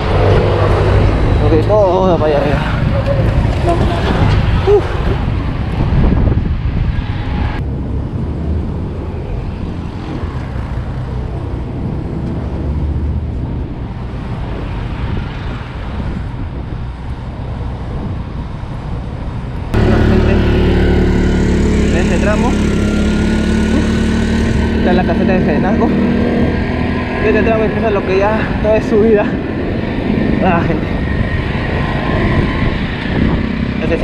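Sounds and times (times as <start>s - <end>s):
road traffic: 0.0s - 34.0s
wind rumble on microphone: 0.0s - 34.0s
small engine running: 19.8s - 25.0s.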